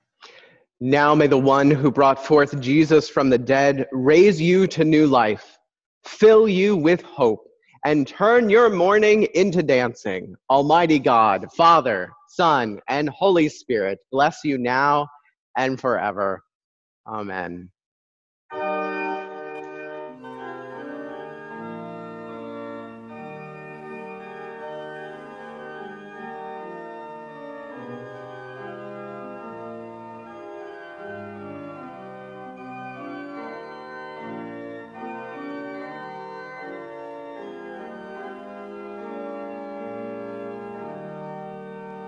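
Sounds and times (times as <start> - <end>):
organ playing sustained chords: 0.8 - 5.2, 6.2 - 9.8, 18.5 - 42.0.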